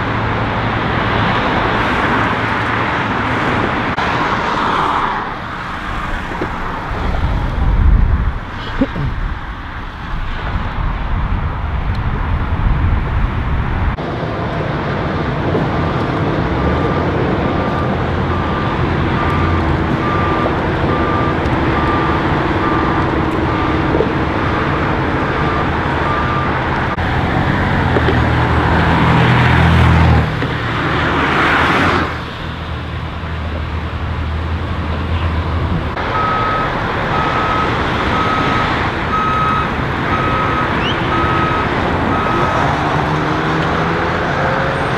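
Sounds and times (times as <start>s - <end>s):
vehicle passing close: 0.0s - 33.2s, 33.9s - 44.9s
freeway traffic noise: 0.0s - 44.9s
reversing alarm beeping: 16.6s - 26.7s, 36.1s - 42.7s.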